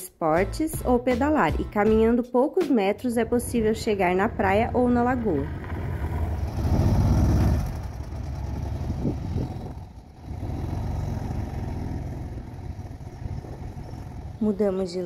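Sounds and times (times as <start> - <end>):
van engine pulling away: 3.2 - 15.0.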